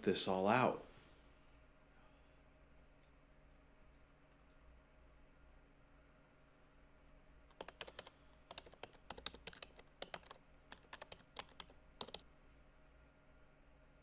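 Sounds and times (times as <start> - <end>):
keyboard typing clicks: 7.5 - 12.2.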